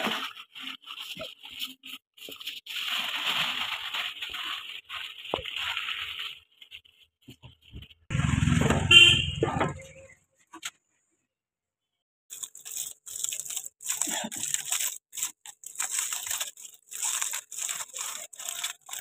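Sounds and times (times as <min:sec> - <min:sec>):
aluminium foil crinkling: 0:00.0 - 0:08.1, 0:12.3 - 0:19.0.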